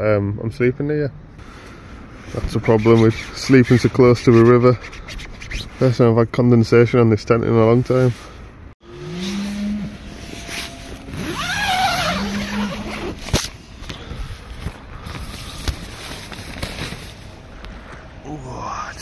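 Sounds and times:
nylon fabric rustling: 9.4s - 13.6s, 14.4s - 17.3s
zip pulled: 10.4s - 13.6s.

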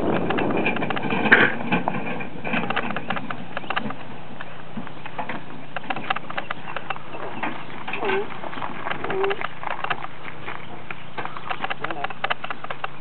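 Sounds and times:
cart wheels rolling over dirt: 0.0s - 13.0s
pony hooves on dirt: 0.0s - 13.0s.

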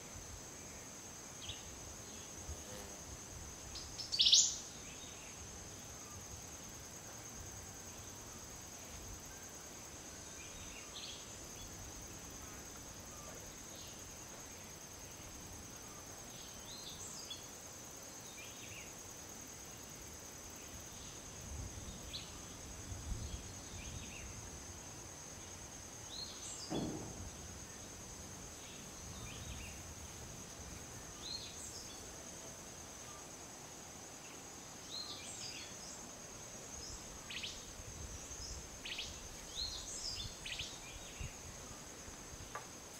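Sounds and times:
thump: 26.6s - 27.7s.

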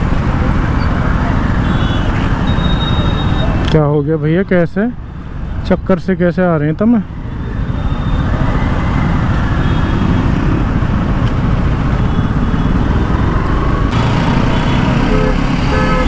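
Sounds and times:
motorcycle engine running: 13.1s - 16.0s.

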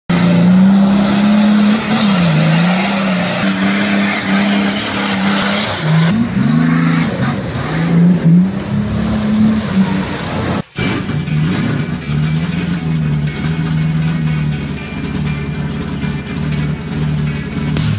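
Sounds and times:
engine revving under load: 0.1s - 17.9s
vehicle churning through mud: 0.1s - 17.9s.

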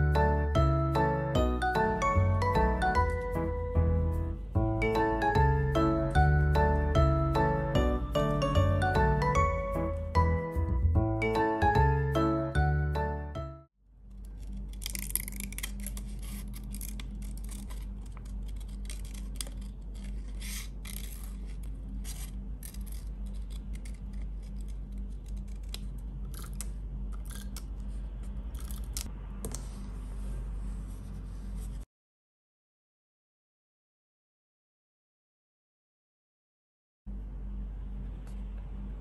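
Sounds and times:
steady low hum: 13.8s - 31.8s, 37.1s - 39.0s
paper rustling: 14.2s - 25.9s
scissors snipping paper: 14.2s - 27.7s, 28.5s - 29.1s.

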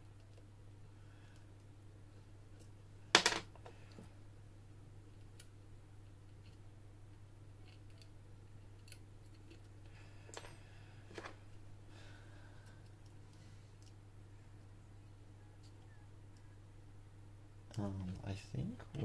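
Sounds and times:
steady low hum: 0.0s - 19.0s
faint clicks of lock picking tools: 7.6s - 10.6s, 12.6s - 14.0s.

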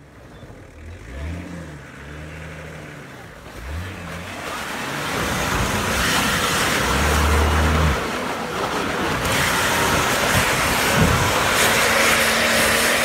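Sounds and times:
snow and slush rushing: 3.5s - 13.0s
engine revving hard: 9.2s - 13.0s.

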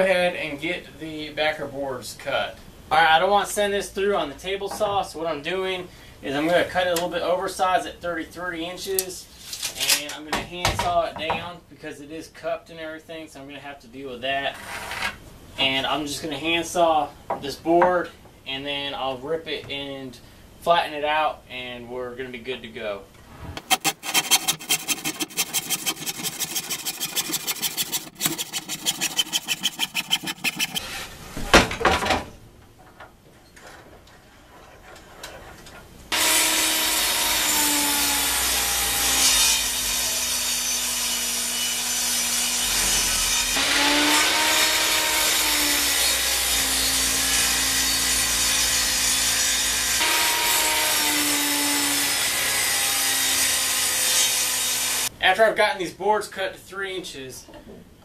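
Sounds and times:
handsaw cutting wood: 23.6s - 31.0s
table saw ripping wood: 23.6s - 31.0s.

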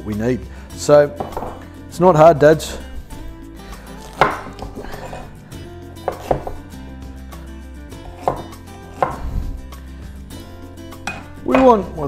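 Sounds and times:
knife chopping on wooden board: 1.2s - 1.6s, 4.0s - 5.3s, 6.0s - 6.7s, 8.1s - 9.4s.

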